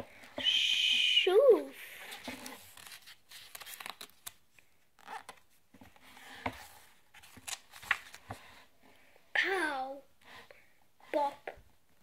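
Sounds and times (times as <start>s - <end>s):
book page turning: 2.0s - 8.4s.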